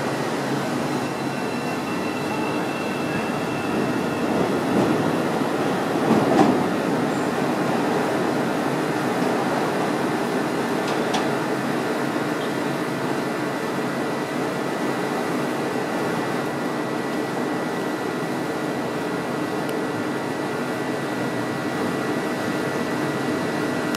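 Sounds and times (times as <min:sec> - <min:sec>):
elevated train rumbling: 0:00.0 - 0:23.9.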